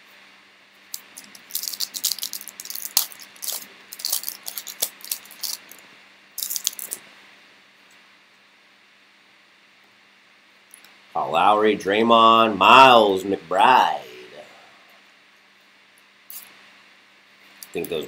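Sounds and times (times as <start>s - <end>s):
foil wrapper crinkling and tearing: 1.0s - 5.8s, 6.4s - 7.0s.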